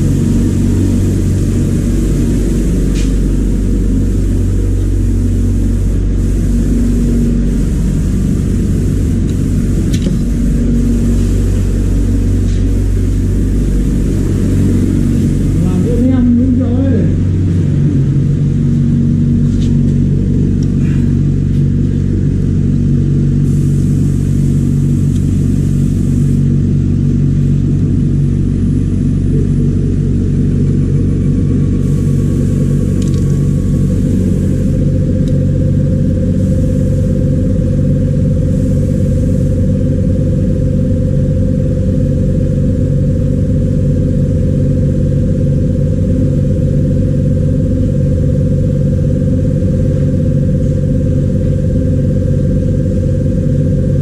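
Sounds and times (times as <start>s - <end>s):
short bursts of high hiss: 0.0s - 15.8s, 23.4s - 26.5s
higher steady tone: 0.0s - 19.4s
vacuum pump humming: 0.0s - 54.0s.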